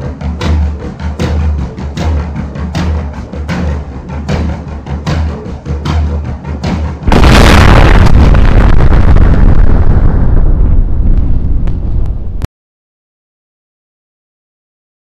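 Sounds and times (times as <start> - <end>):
drum hits: 0.0 - 9.9
loud explosion rumbling and crackling: 7.0 - 12.5.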